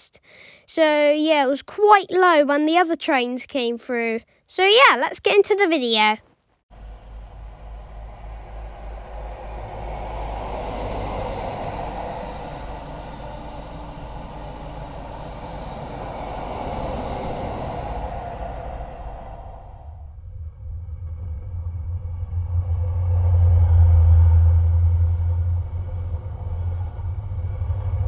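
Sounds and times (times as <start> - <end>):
train passing rumble: 6.7 - 20.2.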